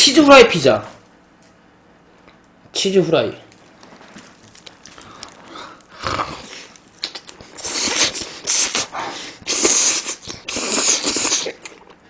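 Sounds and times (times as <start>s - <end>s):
biting pizza: 3.5s - 12.0s
loud wet chewing: 3.6s - 12.0s.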